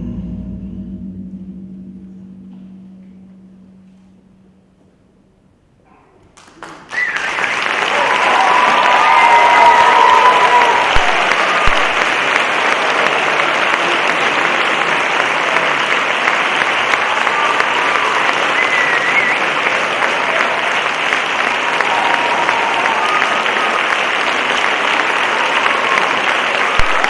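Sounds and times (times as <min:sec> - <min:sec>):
audience applauding: 0:06.3 - 0:27.0.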